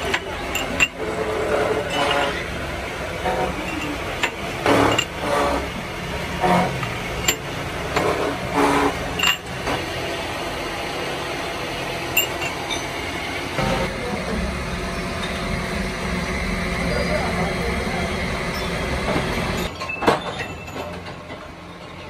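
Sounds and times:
machinery hum: 0.0 - 22.0
steel tubes clattering on metal table: 0.1 - 2.5, 3.2 - 5.4, 9.1 - 9.8.

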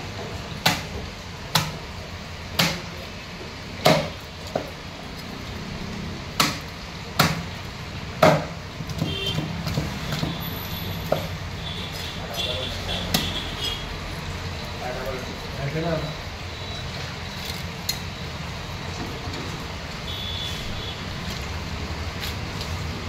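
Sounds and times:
knife chopping on wooden block: 3.8 - 4.7, 8.2 - 10.4.

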